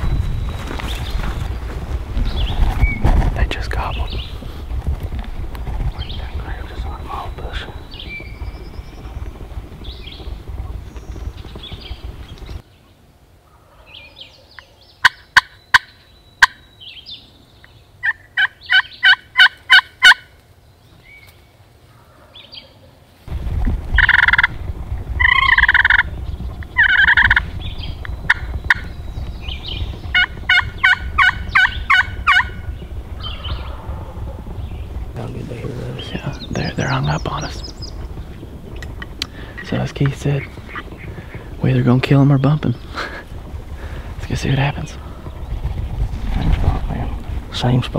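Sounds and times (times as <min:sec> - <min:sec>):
wild turkey gobbling: 0:15.0 - 0:16.6, 0:18.0 - 0:20.4, 0:24.0 - 0:24.6, 0:25.2 - 0:27.4, 0:29.5 - 0:34.8, 0:38.7 - 0:41.6
slate turkey call yelping: 0:18.0 - 0:20.3, 0:25.2 - 0:26.0, 0:26.8 - 0:27.4, 0:30.1 - 0:32.6.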